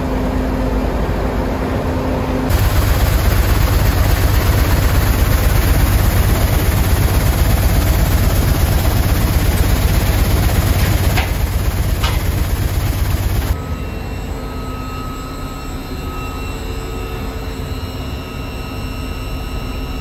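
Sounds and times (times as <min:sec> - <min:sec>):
vibrating screen machine rumbling: 0:02.5 - 0:13.6.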